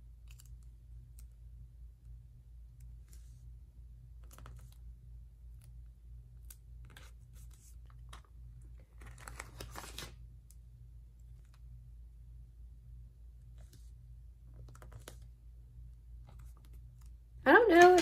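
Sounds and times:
steady low hum: 0:00.0 - 0:09.0, 0:10.2 - 0:17.9
paper rustling: 0:06.8 - 0:10.2.

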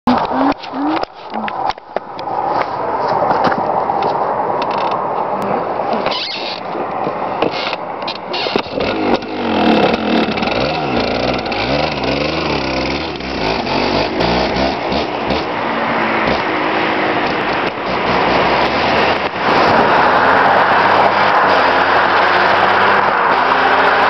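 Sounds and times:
dirt bike revving: 0:08.6 - 0:24.0.

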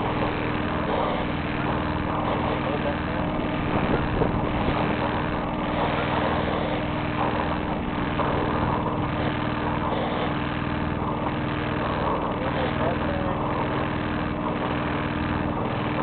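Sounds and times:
boat engine running: 0:00.0 - 0:16.0
wind and water noise: 0:03.3 - 0:06.5.

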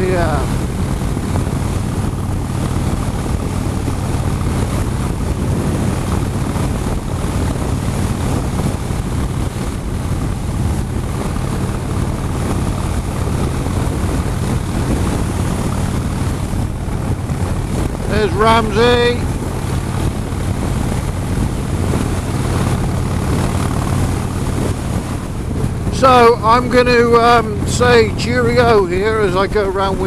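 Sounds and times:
motorcycle engine running: 0:00.0 - 0:30.0
wind rushing over microphone: 0:00.0 - 0:30.0.

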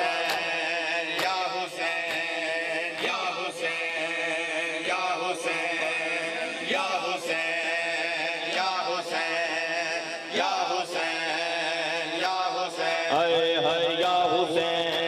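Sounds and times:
men chanting a lament: 0:00.0 - 0:15.0
hands slapping chests: 0:00.2 - 0:03.3.

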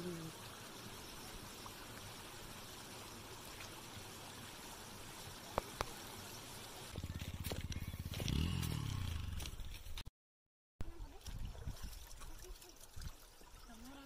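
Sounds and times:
stream flowing: 0:00.0 - 0:07.6, 0:10.9 - 0:14.0
motorcycle engine running: 0:06.9 - 0:09.8.

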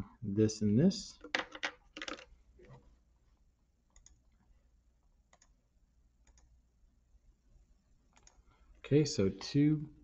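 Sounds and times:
faint computer mouse clicks: 0:06.2 - 0:06.5, 0:08.1 - 0:08.4.

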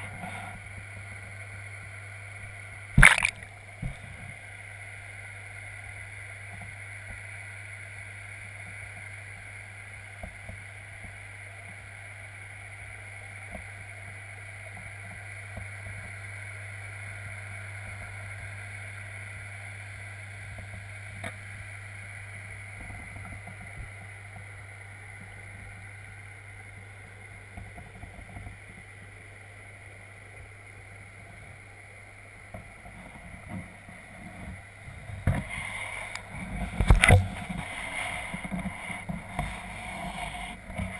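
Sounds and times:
constant low hum: 0:00.0 - 0:40.9
air stone bubbling underwater: 0:02.8 - 0:04.4.

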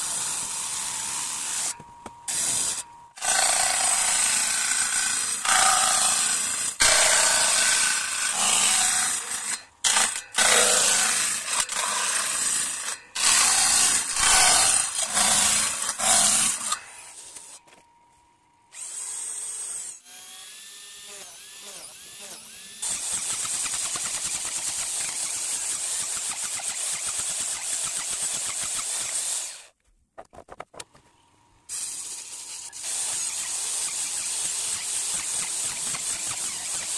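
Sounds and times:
table saw ripping boards: 0:05.4 - 0:16.9
whining machine: 0:18.7 - 0:23.2
mortising machine cutting wood: 0:18.8 - 0:23.5.

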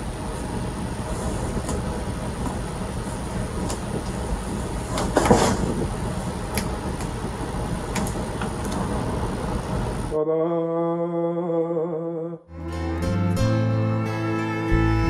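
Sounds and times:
steady background hum: 0:00.0 - 0:10.2.

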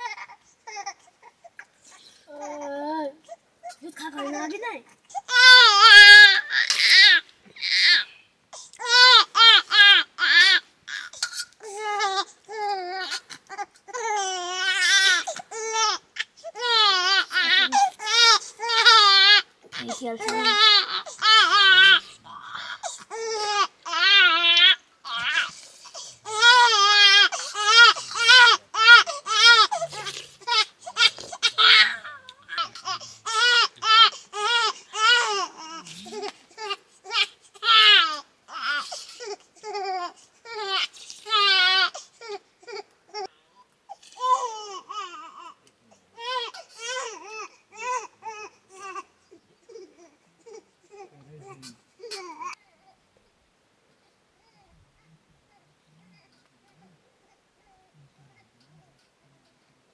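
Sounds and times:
young boy crying: 0:16.6 - 0:25.5.

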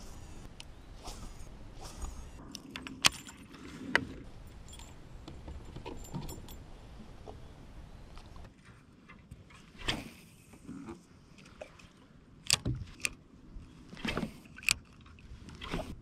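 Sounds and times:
fishing tackle jingling: 0:02.9 - 0:03.6, 0:04.2 - 0:06.9.

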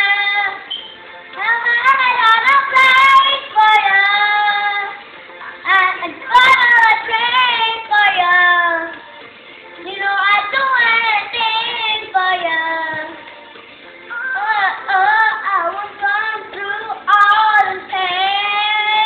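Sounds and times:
boy singing: 0:00.0 - 0:00.8, 0:01.4 - 0:05.0, 0:05.6 - 0:09.0, 0:09.8 - 0:13.2, 0:14.1 - 0:19.0.

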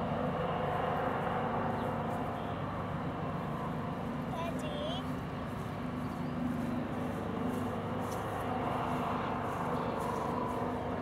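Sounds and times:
diesel locomotive engine droning: 0:00.0 - 0:11.0.

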